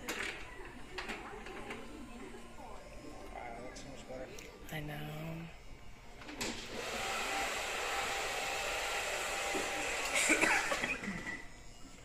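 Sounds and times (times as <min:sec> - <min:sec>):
electric hair clippers buzzing: 0:05.0 - 0:11.9.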